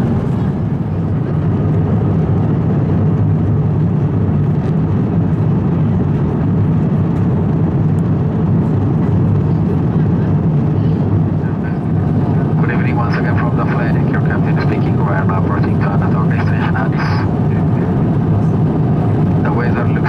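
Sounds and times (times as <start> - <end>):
airliner cabin roar: 0.0 - 20.0.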